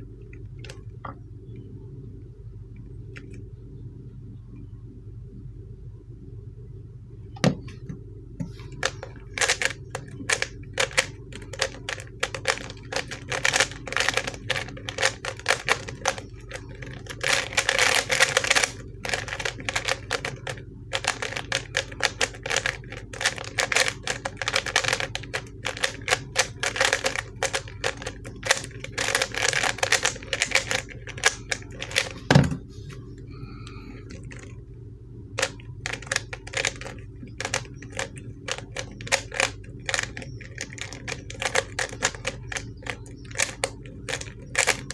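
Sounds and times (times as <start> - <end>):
puzzle cube plastic clicking: 8.6 - 32.2, 35.4 - 44.9.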